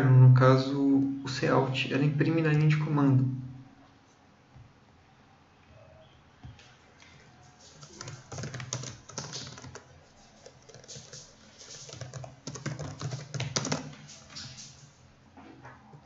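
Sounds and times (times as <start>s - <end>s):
keyboard typing clicks: 7.8s - 14.7s.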